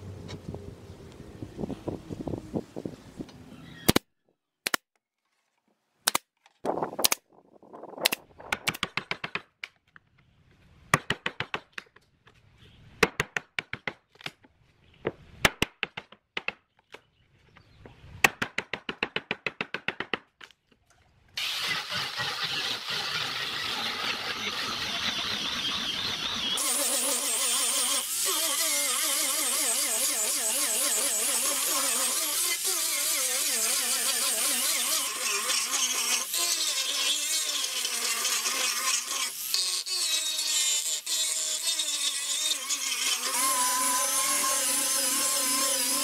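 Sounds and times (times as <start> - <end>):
angle grinder sanding: 21.4 - 46.0.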